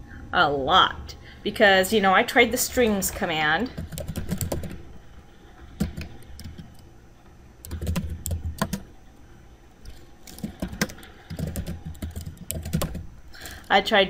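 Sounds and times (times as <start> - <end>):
keyboard keys clicking: 3.8 - 4.8, 5.8 - 6.8, 7.6 - 8.9, 9.8 - 13.1.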